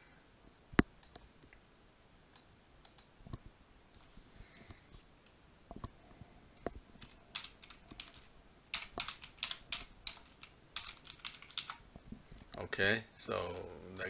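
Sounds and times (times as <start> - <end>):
typing on computer keyboard: 7.0 - 11.8.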